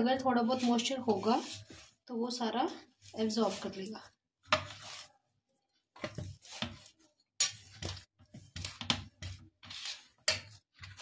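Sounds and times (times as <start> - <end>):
scraping on steel plate: 9.2 - 11.0.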